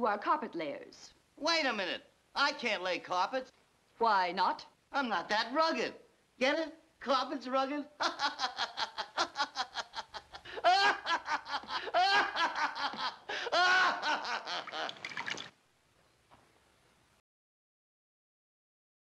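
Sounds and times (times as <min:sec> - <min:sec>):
man laughing: 0:08.0 - 0:15.0.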